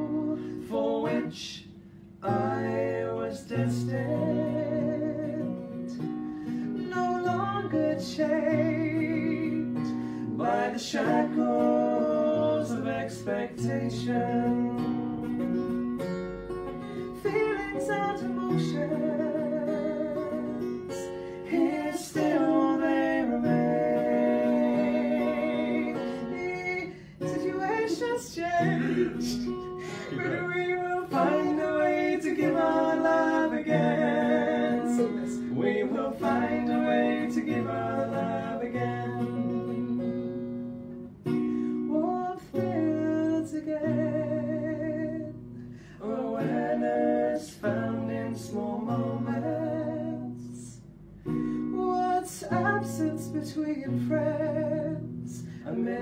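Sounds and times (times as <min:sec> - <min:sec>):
acoustic guitar: 0:00.0 - 0:56.0
woman singing slow song: 0:02.2 - 0:05.7, 0:17.2 - 0:40.2.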